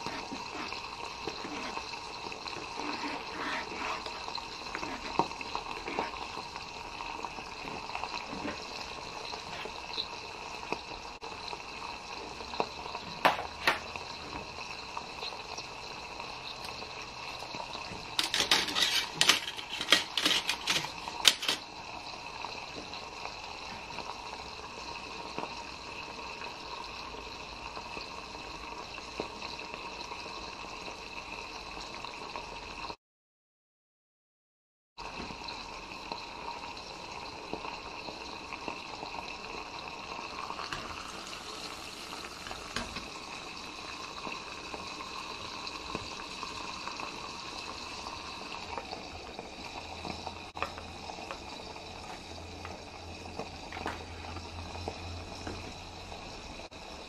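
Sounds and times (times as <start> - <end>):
soup bubbling in a pot: 0.0 - 33.0, 35.0 - 57.0.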